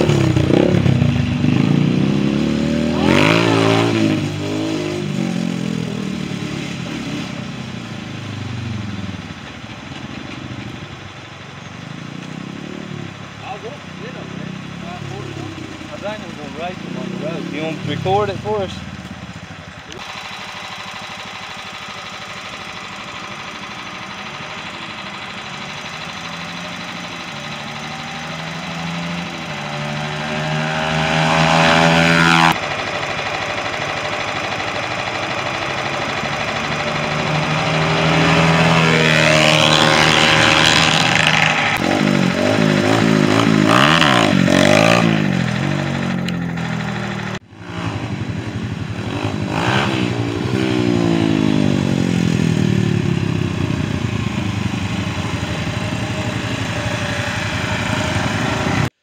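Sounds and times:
dirt bike engine revving: 0.0s - 9.4s, 11.9s - 59.0s
riding lawn mower engine: 0.0s - 59.0s.

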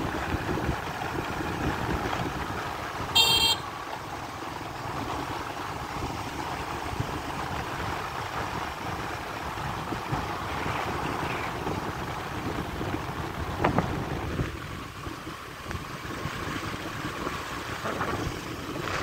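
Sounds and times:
wind on microphone: 9.9s - 19.0s.

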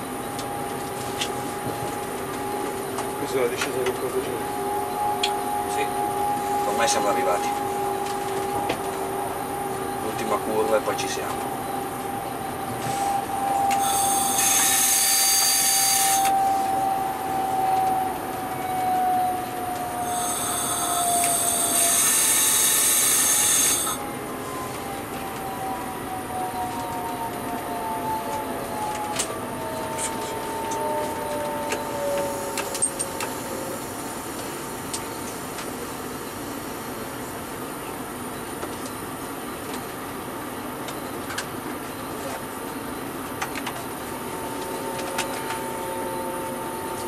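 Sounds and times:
electric train drive whine: 0.0s - 47.0s
wheel squeal: 12.8s - 16.6s, 20.0s - 24.0s.

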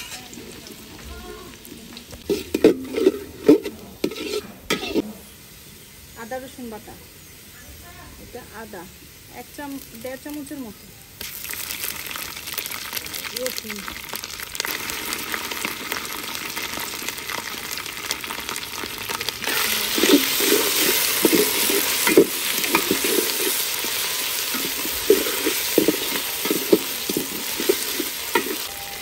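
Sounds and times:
metal spatula scraping pot: 0.0s - 0.5s, 2.2s - 5.2s, 19.4s - 28.9s
onions sizzling in oil: 0.0s - 29.0s.

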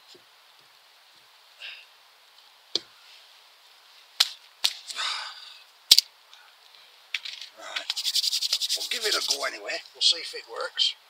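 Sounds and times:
rustle of handled sticks: 0.0s - 10.9s
twigs snapping: 4.2s - 5.0s, 5.9s - 8.1s.

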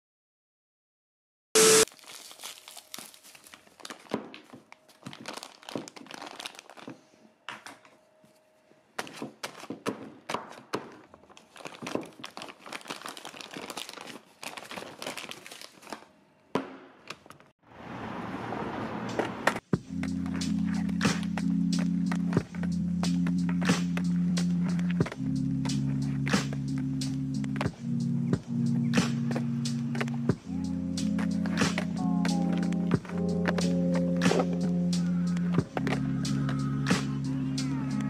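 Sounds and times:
loud glitchy burst: 1.6s - 1.9s
plastic bag crinkling and tearing: 1.8s - 7.9s, 11.0s - 16.1s
music: 19.6s - 38.0s.

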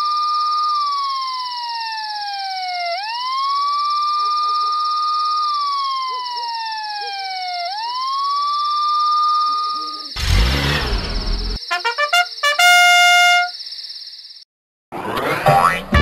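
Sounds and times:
cartoon siren wailing: 0.8s - 8.6s
noisy burst with deep rumble: 10.2s - 11.6s
high whine: 10.2s - 11.9s.

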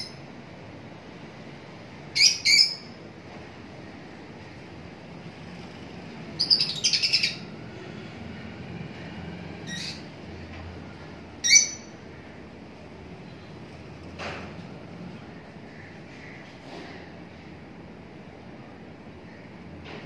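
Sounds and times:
lovebirds chirping: 6.4s - 7.5s, 11.4s - 12.0s.

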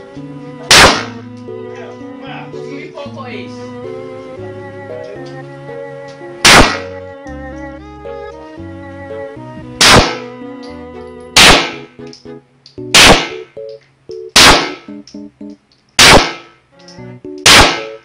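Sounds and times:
background music: 0.0s - 18.0s
pistol shots: 0.7s - 1.2s, 6.5s - 6.9s, 9.8s - 10.3s, 11.4s - 11.9s, 12.9s - 13.4s, 14.4s - 14.9s, 16.0s - 16.6s, 17.4s - 18.0s.

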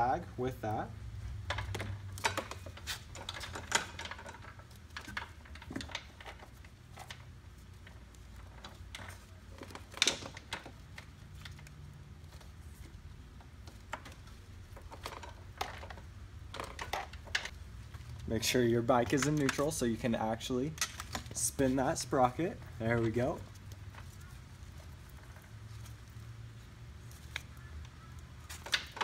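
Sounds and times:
metal chain clinking and rattling: 1.5s - 7.2s
chain clanking on sprocket: 1.5s - 10.8s.

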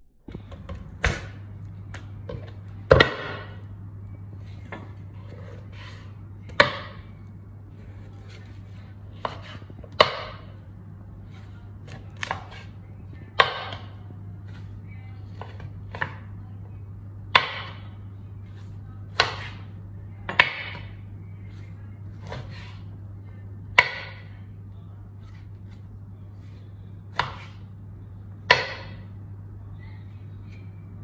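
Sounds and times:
steady low hum: 0.0s - 31.0s
knife chopping on wooden board: 4.7s - 7.0s, 9.2s - 10.5s, 11.8s - 12.7s, 19.1s - 19.7s, 22.2s - 22.8s, 23.8s - 24.3s, 27.1s - 27.6s, 28.5s - 29.0s.

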